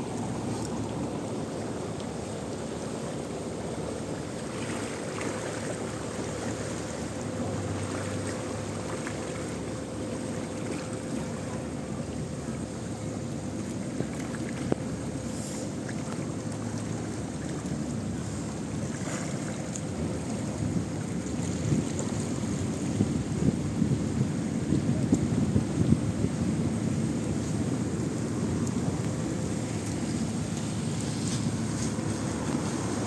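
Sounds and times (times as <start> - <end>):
river water rushing: 0.0 - 22.7, 27.1 - 33.0.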